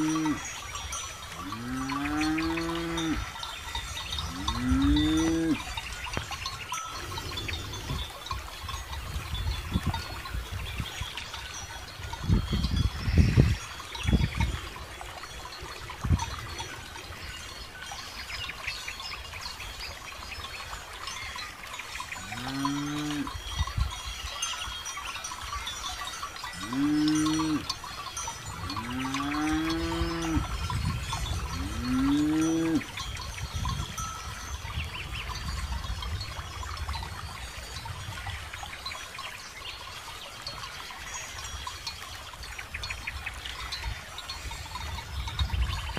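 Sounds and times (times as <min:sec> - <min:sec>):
cattle mooing: 0:00.0 - 0:00.4, 0:01.4 - 0:03.3, 0:04.3 - 0:05.6, 0:22.3 - 0:23.3, 0:26.6 - 0:27.7, 0:28.7 - 0:30.5, 0:31.5 - 0:32.9
cowbells clinking: 0:00.0 - 0:45.9.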